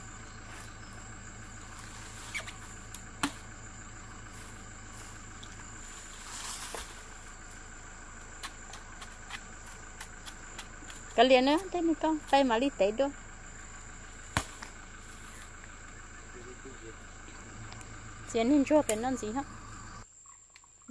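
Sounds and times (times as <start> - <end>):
high insect drone: 0.0 - 20.9
machete knocking into bamboo: 3.2 - 3.5, 14.4 - 14.8
short rustle: 4.2 - 7.3.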